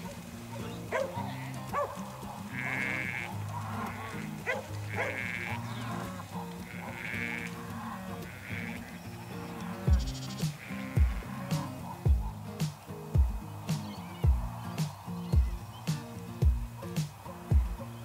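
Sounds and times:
sheep bleating: 0.4s - 12.4s
background music with bass line: 9.2s - 18.0s.

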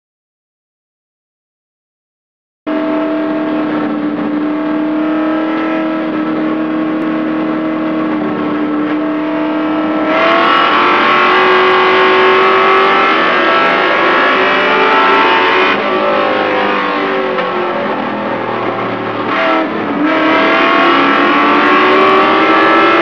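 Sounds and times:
truck engine running hard: 2.7s - 23.0s.

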